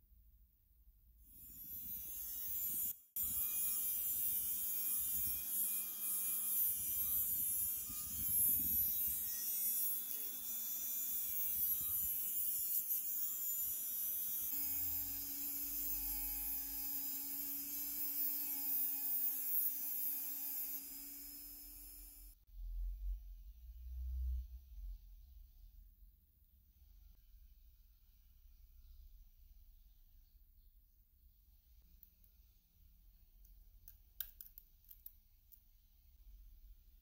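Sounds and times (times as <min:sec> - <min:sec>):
rotary tool cutting metal: 0:01.3 - 0:22.4.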